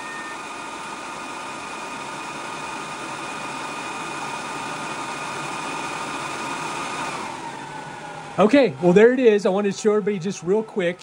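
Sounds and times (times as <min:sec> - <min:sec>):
faint whine tones: 0:00.0 - 0:00.6
cooling fans rushing: 0:00.0 - 0:11.0.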